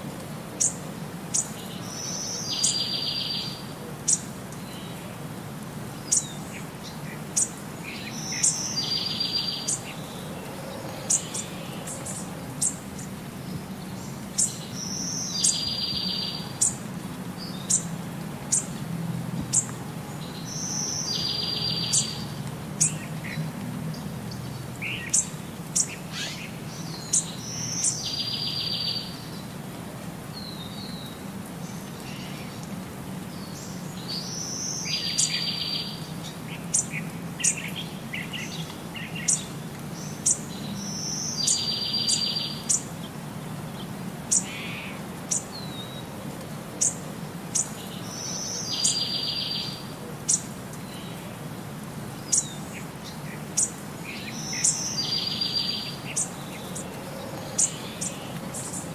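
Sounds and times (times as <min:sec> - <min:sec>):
birds chirping: 0:05.9 - 0:18.8, 0:19.4 - 0:29.5, 0:46.8 - 0:51.2, 0:52.1 - 0:58.9.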